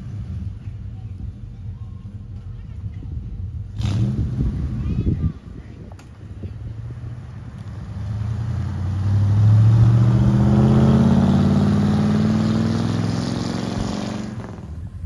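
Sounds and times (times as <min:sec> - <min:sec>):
car accelerating past: 0:07.4 - 0:14.9.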